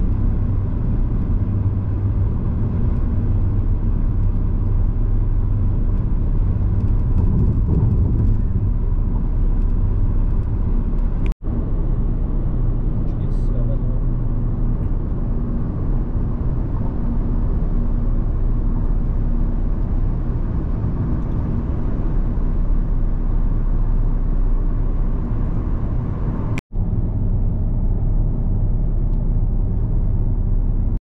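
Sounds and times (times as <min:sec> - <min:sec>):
car road and engine rumble: 0:00.0 - 0:31.0.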